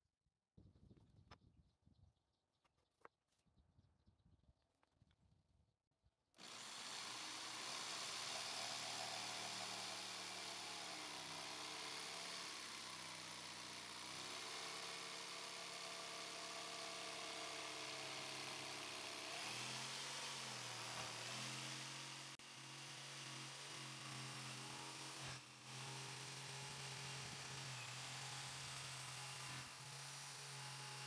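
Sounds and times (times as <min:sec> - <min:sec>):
jigsaw cutting wood: 0:06.4 - 0:31.0.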